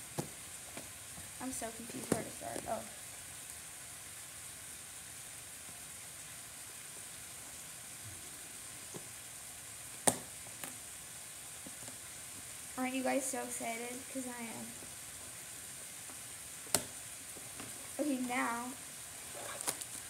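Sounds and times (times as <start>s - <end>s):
faint hiss: 0.0s - 20.0s.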